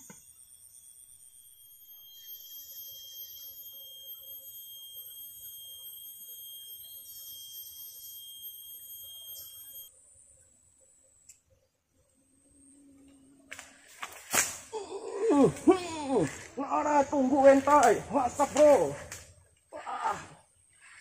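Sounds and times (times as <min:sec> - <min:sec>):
insects whining: 0:00.0 - 0:21.0
rasping insect swell: 0:00.1 - 0:11.0, 0:11.6 - 0:21.0.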